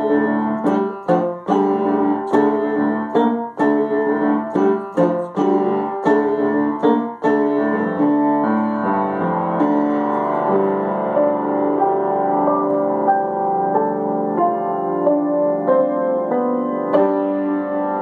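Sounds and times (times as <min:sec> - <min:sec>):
piano notes and chords: 0:00.0 - 0:18.0.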